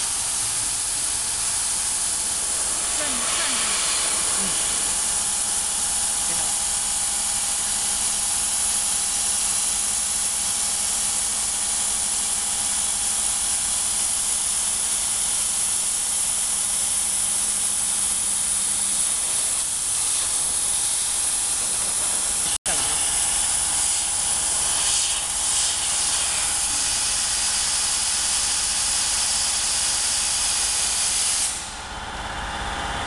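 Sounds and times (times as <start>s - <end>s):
low steady hum: 0.0s - 7.2s
laser cutter air hiss: 0.0s - 31.9s.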